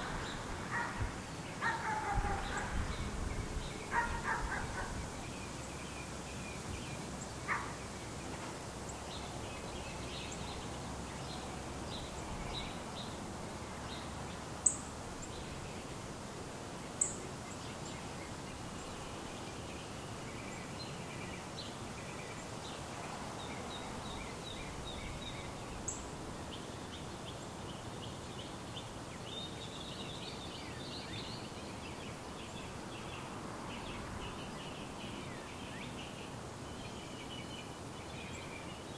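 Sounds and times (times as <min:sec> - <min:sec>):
small birds chirping: 0:00.0 - 0:13.2
low outdoor ambience: 0:00.0 - 0:38.9.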